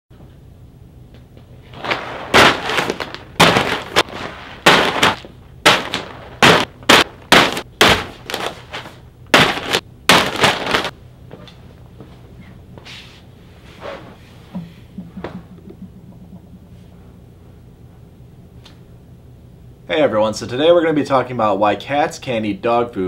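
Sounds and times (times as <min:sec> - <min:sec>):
plastic bags slapping onto armchair: 0:01.7 - 0:11.0.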